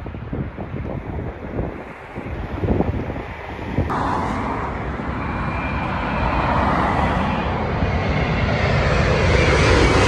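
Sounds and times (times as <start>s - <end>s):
jet airliner passing overhead: 0.0s - 10.0s.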